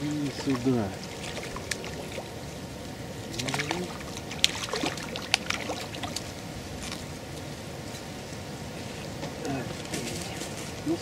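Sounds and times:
fish thrashing in water: 0.3 - 2.6, 3.2 - 7.0.

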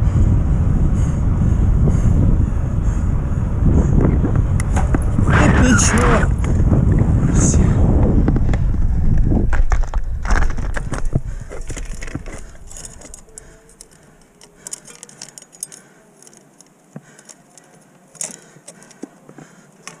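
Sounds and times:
wind: 0.0 - 20.0
bike chain clinking and rattling: 10.7 - 19.0.

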